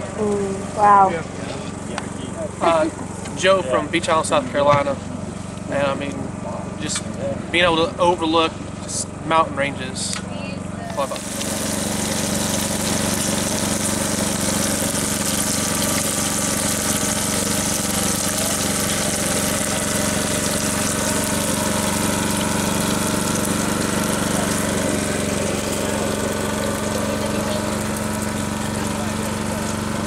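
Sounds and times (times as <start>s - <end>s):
low engine-like hum: 0.0s - 30.0s
meat sizzling on griddle: 10.9s - 30.0s.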